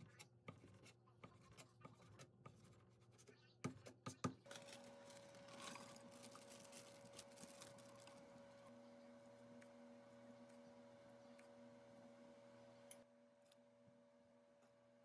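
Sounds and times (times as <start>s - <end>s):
faint steady hum: 4.5s - 15.0s.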